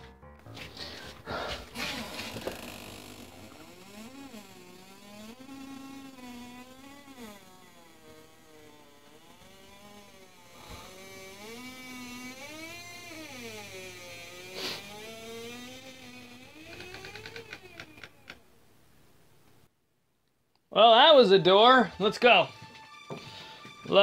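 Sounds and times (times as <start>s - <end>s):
buzzy electronic tone sliding in pitch: 1.7s - 17.5s.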